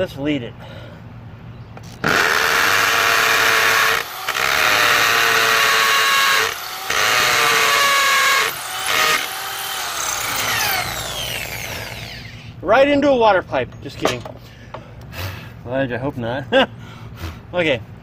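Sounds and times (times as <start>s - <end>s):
hammer drill boring into brick: 2.0s - 12.5s.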